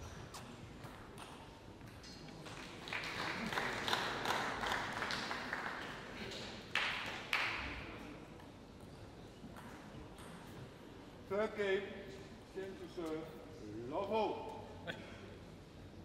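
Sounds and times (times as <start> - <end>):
audience applause: 2.5 - 7.5.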